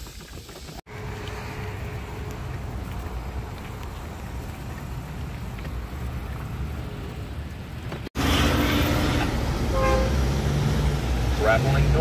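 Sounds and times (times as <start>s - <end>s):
bicycle tyres rolling on pavement: 0.0s - 8.3s
street traffic noise: 0.5s - 12.0s.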